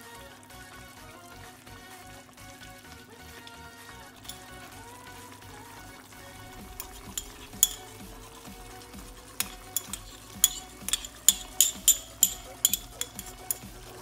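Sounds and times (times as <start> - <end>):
metal spoon clinking on ceramic bowl: 4.2 - 4.5, 6.8 - 8.0, 9.4 - 13.8.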